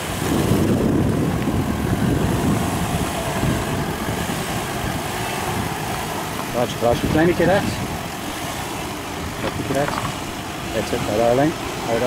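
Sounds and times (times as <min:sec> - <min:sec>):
low engine rumble: 0:00.0 - 0:12.0
tyres rolling on stones: 0:08.8 - 0:11.0.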